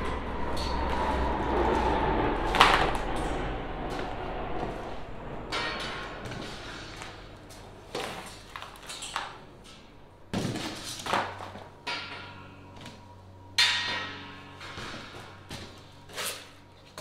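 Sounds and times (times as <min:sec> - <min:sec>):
metal knocks and clanks: 0:05.4 - 0:13.0, 0:13.6 - 0:15.8.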